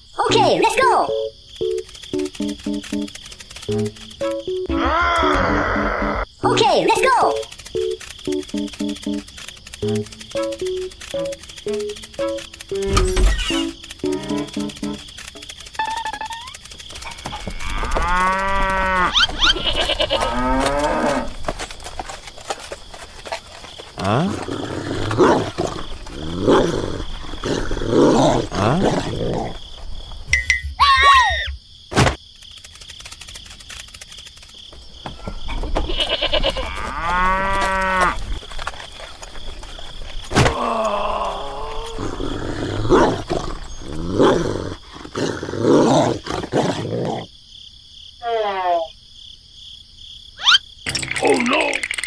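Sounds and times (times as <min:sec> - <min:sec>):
cartoon animal calls: 0:04.7 - 0:07.4, 0:48.2 - 0:48.9, 0:50.4 - 0:51.9.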